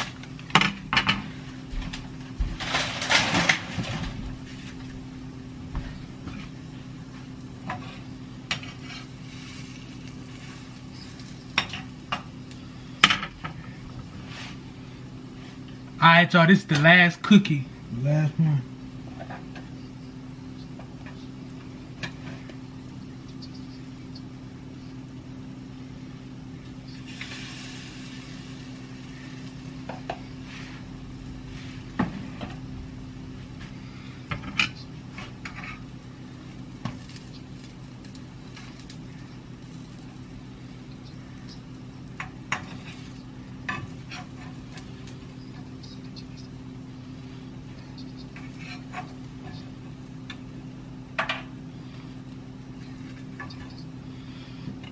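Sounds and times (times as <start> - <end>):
low steady hum: 0.0 - 54.9
oil sizzling: 6.6 - 13.8, 19.9 - 50.3.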